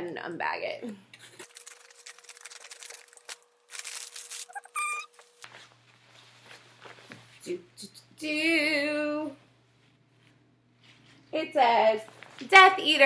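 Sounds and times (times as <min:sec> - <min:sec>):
plastic bag crinkling: 0:01.4 - 0:05.4
high squeak-like tone: 0:04.5 - 0:05.1.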